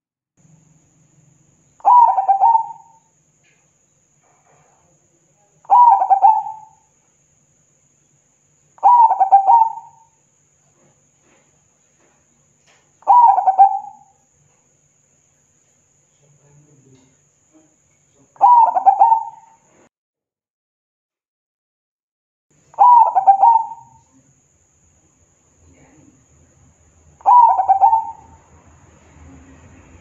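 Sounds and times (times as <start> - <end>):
dove cooing: 1.8 - 3.0, 5.7 - 6.8, 8.8 - 10.1, 13.0 - 14.1, 18.4 - 19.6, 22.8 - 24.0, 27.2 - 28.4.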